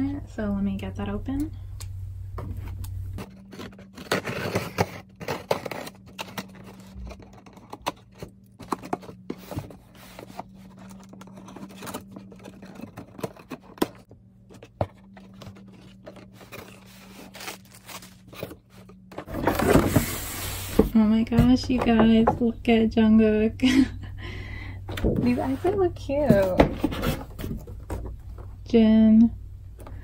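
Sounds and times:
packaging tearing: 3.2 - 9.2, 15.0 - 18.9
cardboard box being opened: 3.2 - 20.9, 25.3 - 28.2.

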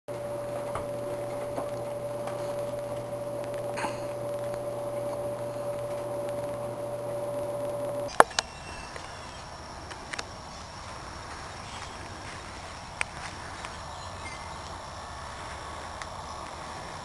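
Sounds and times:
steady hum: 0.1 - 17.0.

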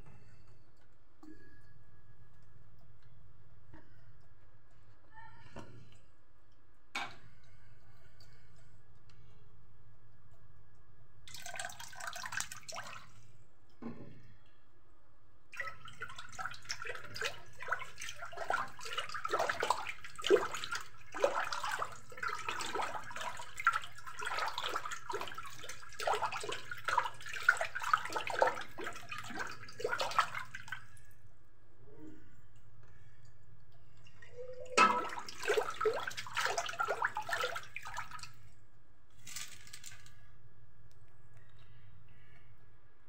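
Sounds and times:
spoon stirring water in bowl: 15.6 - 31.0, 34.0 - 38.3.

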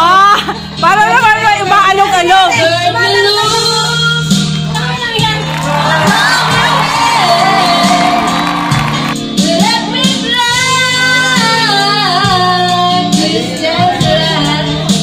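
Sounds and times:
steady bass line: 3.7 - 12.6.

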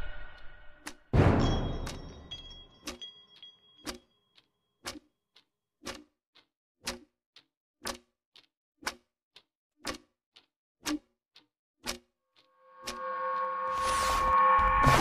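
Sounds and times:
clock ticking: 0.0 - 15.0.

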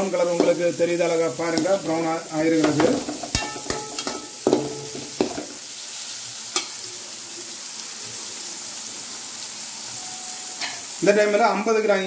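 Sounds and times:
vegetables sizzling in hot oil: 0.0 - 12.0
ladle scraping and knocking pan: 2.6 - 5.6.

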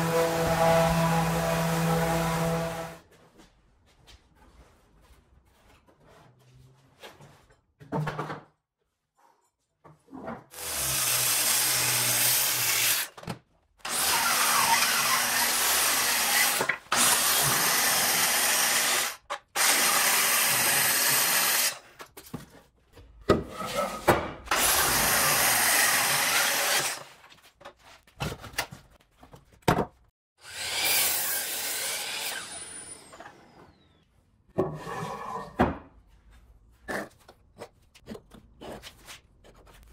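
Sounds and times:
power saw cutting wood: 0.0 - 3.0, 10.5 - 13.1, 13.8 - 21.8, 24.5 - 27.0, 30.4 - 34.0.

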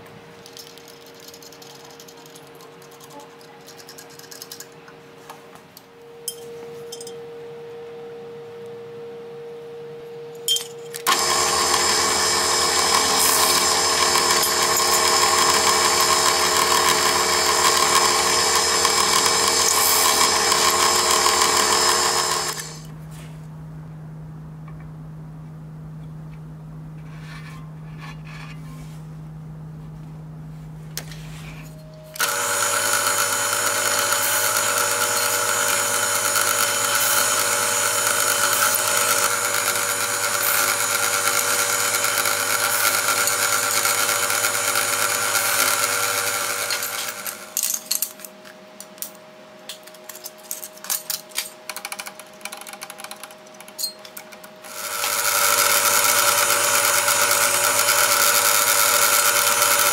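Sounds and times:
drill press whine: 6.1 - 23.0, 31.0 - 48.0, 51.7 - 59.9.

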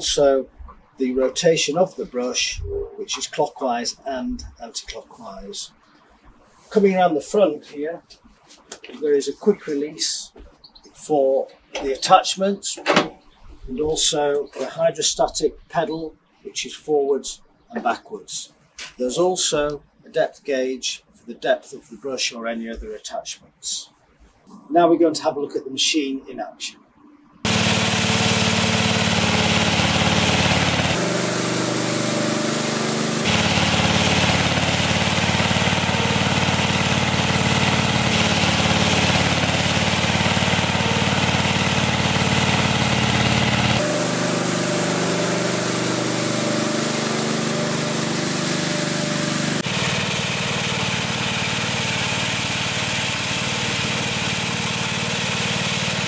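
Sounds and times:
small petrol engine running: 27.4 - 56.0.

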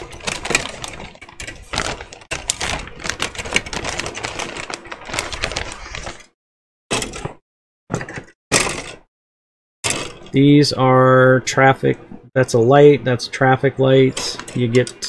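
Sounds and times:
plastic bag crinkling: 0.0 - 6.3.

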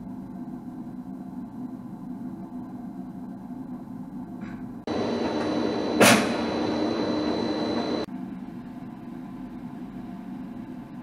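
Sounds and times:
mechanical noise and high whine: 0.0 - 11.0
lathe low hum: 4.9 - 8.1
sharp machine clunk: 4.9 - 8.1.

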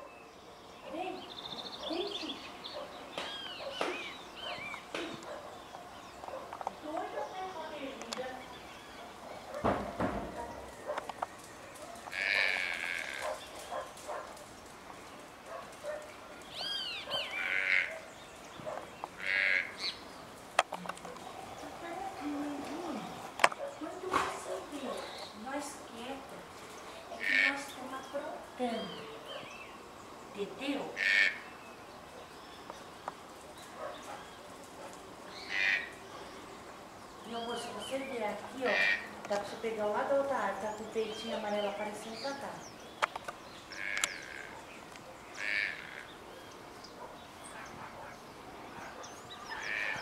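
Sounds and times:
toucan croaking calls: 0.9 - 11.3, 12.0 - 13.9, 15.9 - 34.4, 35.3 - 50.0
toucan harsh call: 30.9 - 31.5.

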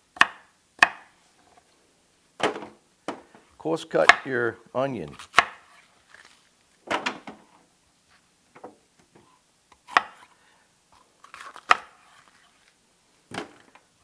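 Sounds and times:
knife cutting onion: 5.1 - 5.9, 9.8 - 10.3, 11.2 - 12.5.

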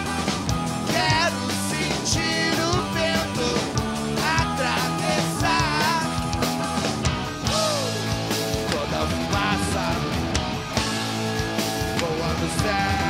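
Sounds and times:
live rock band playing: 0.0 - 13.0
man singing into a microphone: 0.9 - 6.2, 8.6 - 10.2, 12.0 - 13.0.

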